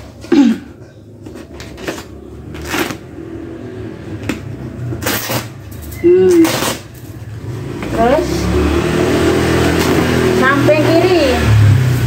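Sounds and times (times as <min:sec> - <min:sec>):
fabric tearing: 0:01.8 - 0:03.1, 0:05.0 - 0:05.6, 0:06.3 - 0:07.1.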